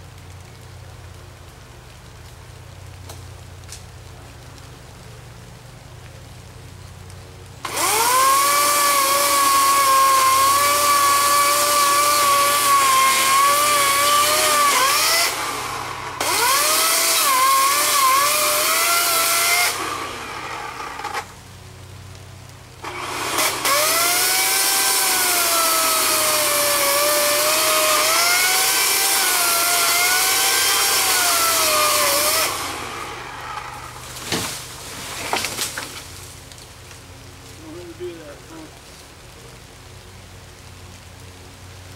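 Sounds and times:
sharp cracks: 5.8 - 37.1
electric chainsaw cutting wood: 7.6 - 21.4, 22.8 - 36.4.

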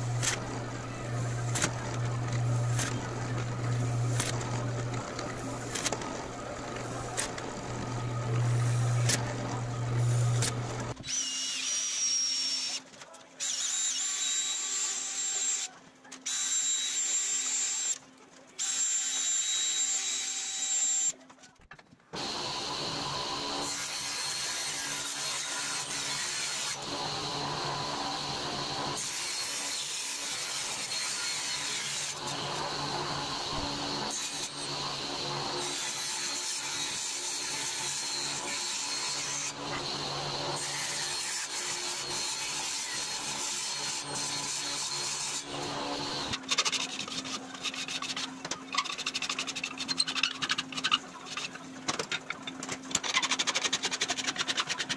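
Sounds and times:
table saw running: 0.0 - 12.8, 22.2 - 48.2
cordless drill drilling metal: 6.8 - 12.8.

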